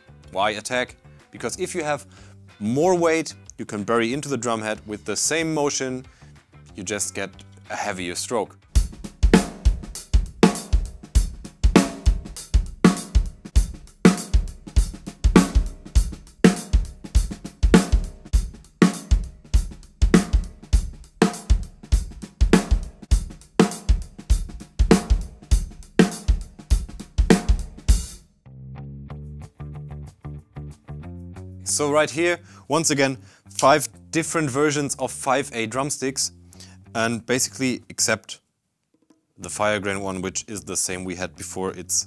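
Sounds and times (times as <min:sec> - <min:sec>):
music cue with low tones: 0:06.4 - 0:38.1
drum kit playing steady beat: 0:08.7 - 0:28.2.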